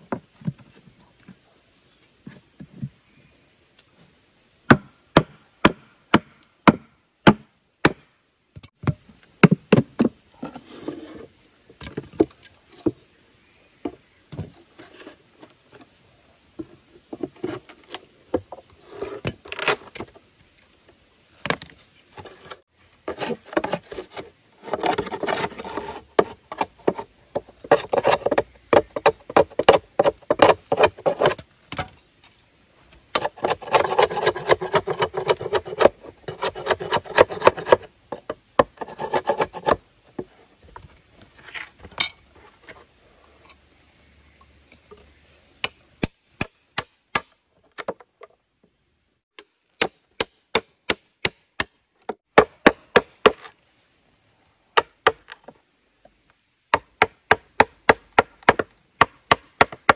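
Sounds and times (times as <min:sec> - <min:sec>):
sharp knocks on bamboo: 0:04.7 - 0:10.2, 0:45.6 - 0:48.0, 0:49.4 - 0:53.5, 0:56.7 - 0:59.9
tool scraping bamboo: 0:10.4 - 0:11.3, 0:14.4 - 0:16.0, 0:18.7 - 0:20.0, 0:21.9 - 0:31.5, 0:33.2 - 0:40.3.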